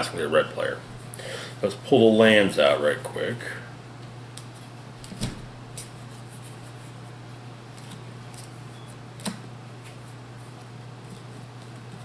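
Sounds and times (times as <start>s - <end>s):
steady low hum: 0.0s - 12.0s
cards clicking and tapping: 9.2s - 10.0s.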